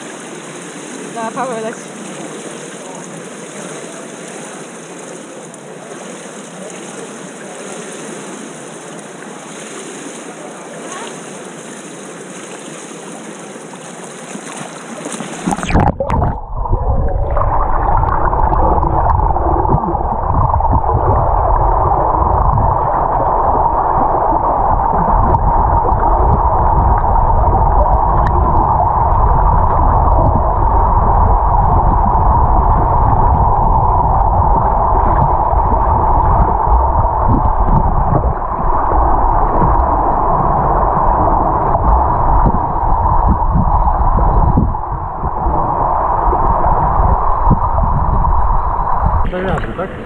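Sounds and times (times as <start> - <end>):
water lapping: 0.0 - 15.8
muffled underwater rumble: 15.0 - 50.0.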